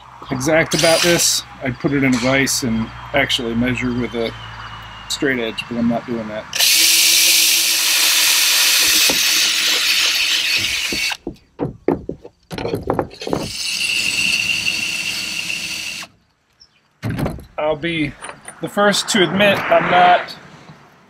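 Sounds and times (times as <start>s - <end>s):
cordless drill boring through plastic: 6.6s - 11.2s, 13.2s - 16.1s
sharp knocks and clatters: 8.8s - 13.6s, 17.0s - 17.6s.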